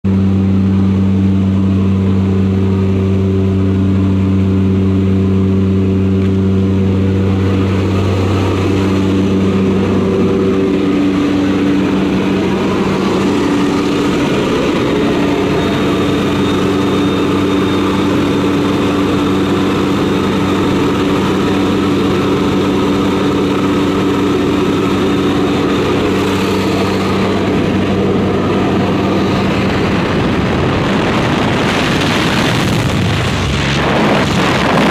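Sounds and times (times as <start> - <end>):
propeller engines droning: 0.0 - 34.9
rush of air: 26.0 - 34.9.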